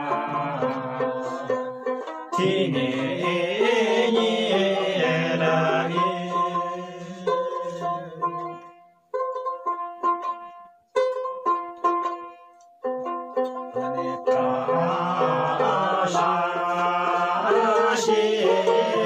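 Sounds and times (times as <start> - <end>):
men and women singing: 0.0 - 8.7, 13.6 - 19.0
plucked lute: 0.0 - 19.0.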